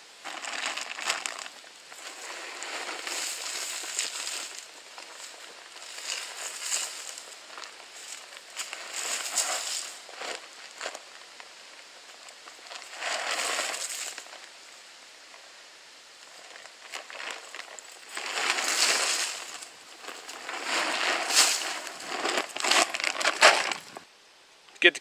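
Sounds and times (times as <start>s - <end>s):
corn kernels pattering on ground: 0.2s - 15.5s, 16.1s - 24.0s.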